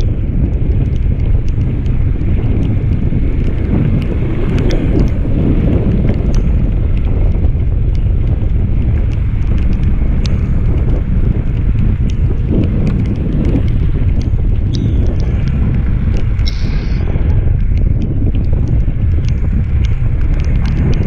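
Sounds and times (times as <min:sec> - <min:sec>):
light rain ticks: 0:00.0 - 0:21.0
wind buffeting microphone: 0:00.0 - 0:21.0.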